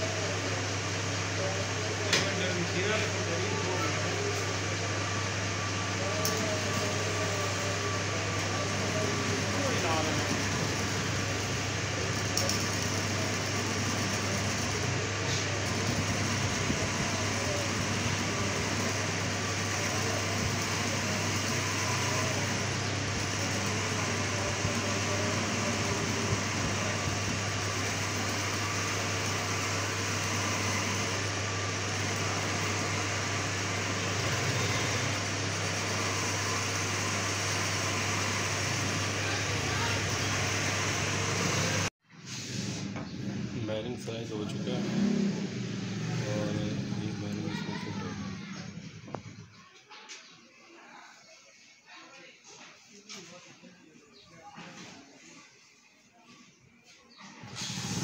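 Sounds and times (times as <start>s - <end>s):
metal lathe humming: 0.0s - 41.9s.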